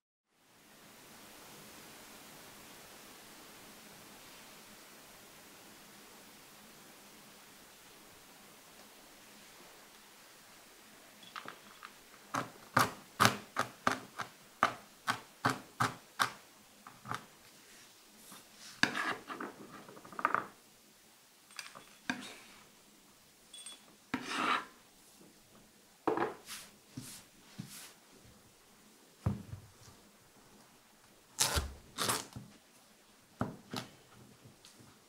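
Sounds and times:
knife scraping across board: 18.6s - 20.0s, 24.1s - 24.8s.

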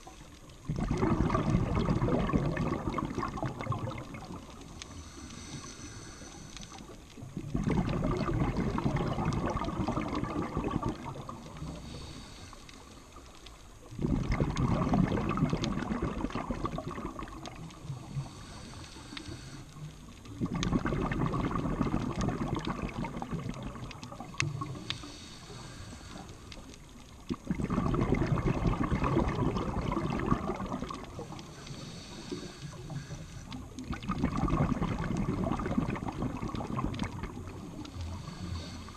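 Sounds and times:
exhaled bubbles rushing: 0.0s - 4.8s, 7.1s - 12.0s, 13.9s - 18.4s, 20.2s - 25.0s, 26.9s - 38.9s.

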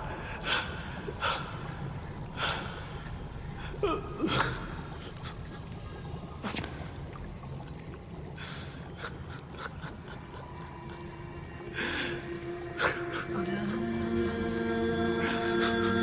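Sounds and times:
sustained film score tones: 10.7s - 16.0s.

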